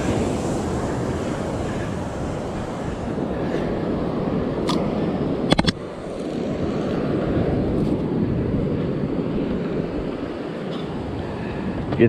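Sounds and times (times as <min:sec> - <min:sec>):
surf: 0:00.0 - 0:12.0
wind buffeting microphone: 0:00.0 - 0:12.0
fishing rod clicks: 0:04.6 - 0:04.8, 0:05.5 - 0:06.3.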